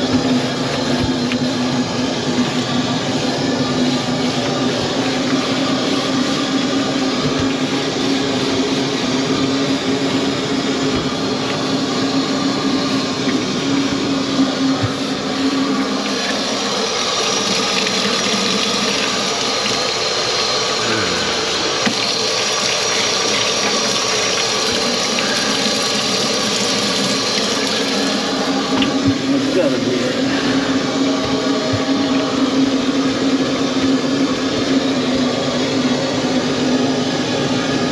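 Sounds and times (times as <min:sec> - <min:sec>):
tap water splashing in sink: 0:15.8 - 0:20.5, 0:21.8 - 0:29.4.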